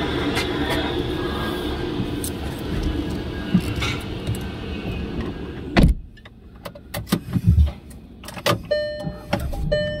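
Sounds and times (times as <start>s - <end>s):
clicks and knocks inside car: 5.2s - 10.0s.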